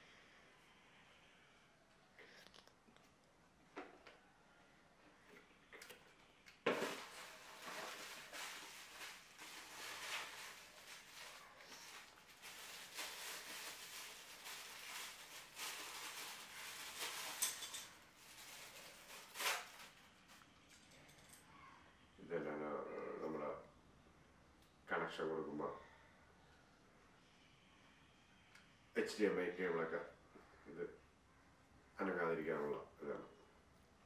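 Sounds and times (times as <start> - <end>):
plastic bag crinkling: 6.6 - 20.4.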